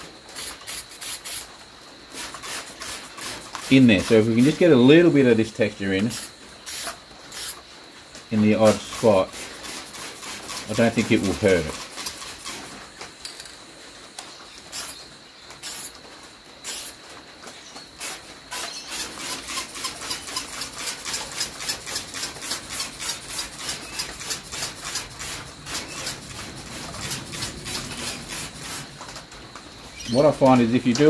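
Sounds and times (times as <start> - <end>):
spray bottle squirting: 0.0 - 4.5, 6.1 - 7.6, 8.6 - 12.8, 14.7 - 15.0, 15.6 - 16.0, 16.6 - 17.0, 18.0 - 29.1.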